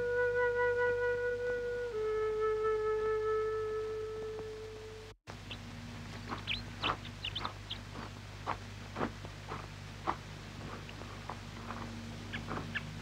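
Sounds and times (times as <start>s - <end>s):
small birds chirping: 5.3s - 13.0s
footsteps on gravel path: 5.6s - 13.0s.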